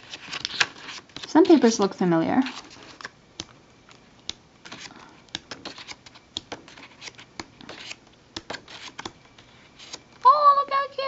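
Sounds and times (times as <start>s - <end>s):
paper rustling: 0.0s - 3.1s, 4.6s - 10.1s.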